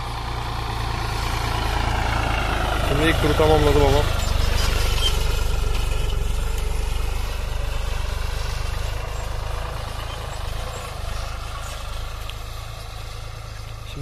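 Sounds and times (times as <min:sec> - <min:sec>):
tractor diesel engine running: 0:00.0 - 0:14.0.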